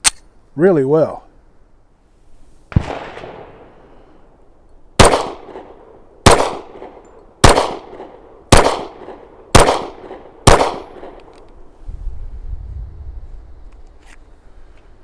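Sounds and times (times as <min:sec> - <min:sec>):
pistol shots: 0:02.7 - 0:03.6, 0:05.0 - 0:11.3.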